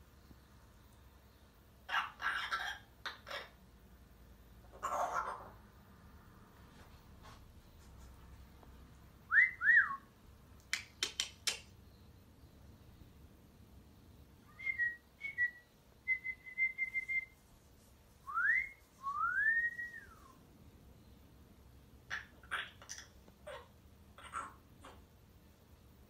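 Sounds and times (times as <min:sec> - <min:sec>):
parrot clicks: 0:10.6 - 0:11.7.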